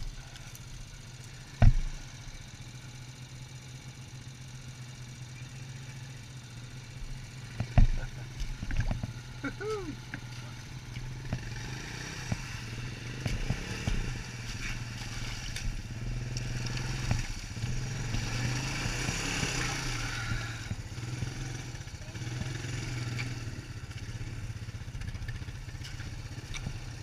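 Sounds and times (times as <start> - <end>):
atv engine running: 0.0 - 27.0
water splashing: 12.0 - 20.8.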